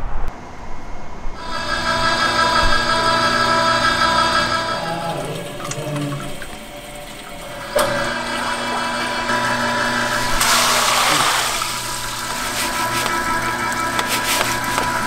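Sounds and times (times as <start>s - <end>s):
rice-washing machine humming: 1.4s - 15.0s
water and rice gushing into colander: 4.4s - 15.0s.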